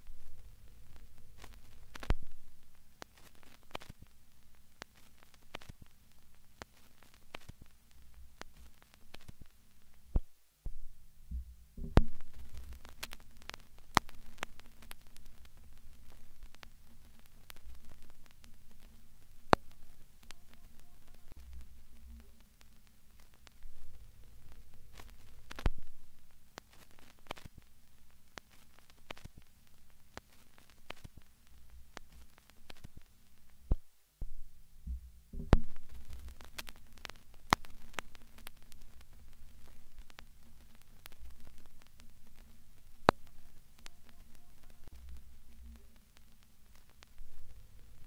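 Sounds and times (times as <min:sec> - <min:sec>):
low steady hum: 0:00.0 - 0:48.0
sharp clicks: 0:00.1 - 0:10.3, 0:11.8 - 0:27.7, 0:28.3 - 0:33.8, 0:35.4 - 0:48.0
heavy thumps: 0:10.2 - 0:16.6, 0:33.7 - 0:37.6.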